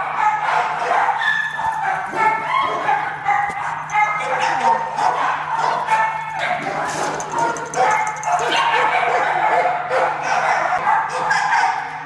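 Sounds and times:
dogs yipping and whining: 0.0 - 12.0.

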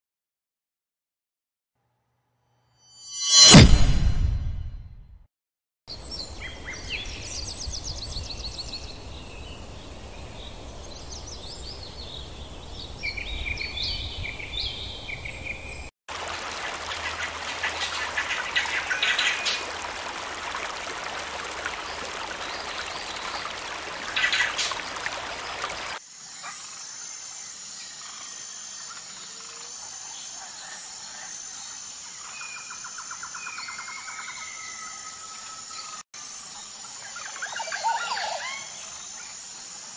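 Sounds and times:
birds chirping and calling: 24.1 - 26.6.

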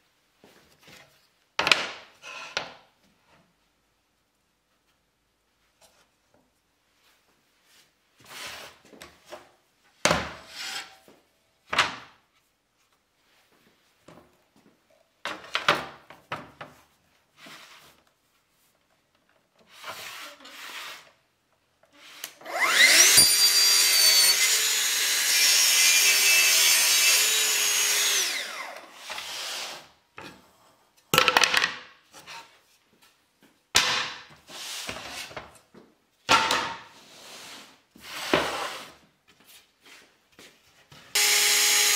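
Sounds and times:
saw cutting wooden board: 22.0 - 29.9, 41.2 - 41.9
track saw whining: 22.4 - 29.6, 41.2 - 41.9.

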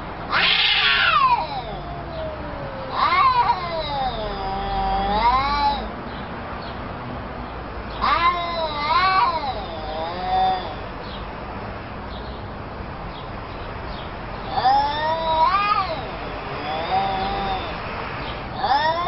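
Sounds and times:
cats yowling: 0.3 - 5.9, 7.9 - 10.9, 14.4 - 19.0.

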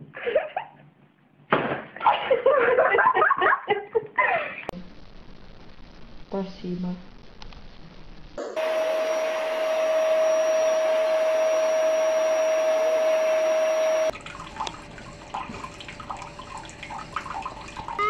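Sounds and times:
appliance motor and fan whooshing: 8.6 - 17.9
tap water running: 8.6 - 18.0
water drips: 14.1 - 18.0.

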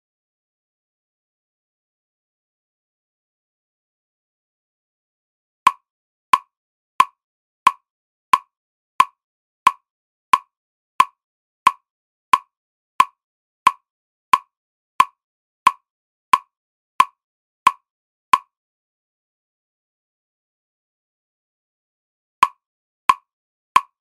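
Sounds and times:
electronic metronome clicking: 23.8 - 24.0.

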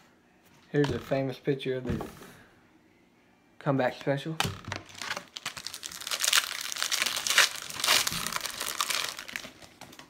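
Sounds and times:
card pack wrapper crinkling: 4.7 - 10.0.

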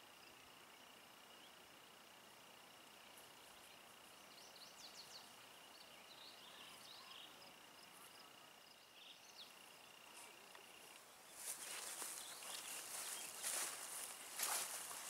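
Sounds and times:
distant bird chirps: 0.1 - 15.0
rustling through grass: 10.1 - 15.0.

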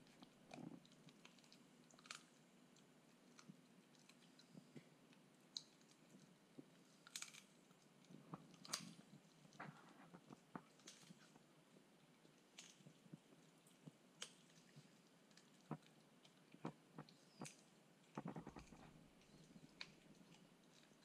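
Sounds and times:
dog crunching bone: 5.6 - 11.5, 12.2 - 21.0.

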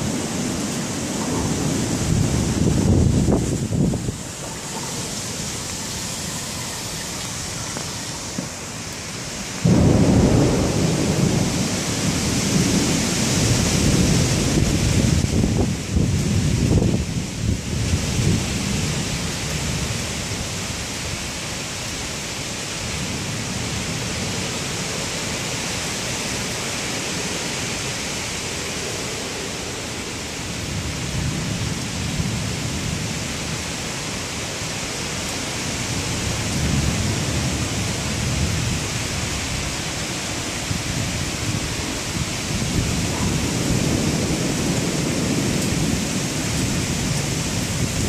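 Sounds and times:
thunder rumbling: 0.0 - 20.3, 35.8 - 39.8, 40.5 - 48.0
rain hissing: 0.0 - 48.0
wind: 0.0 - 48.0.

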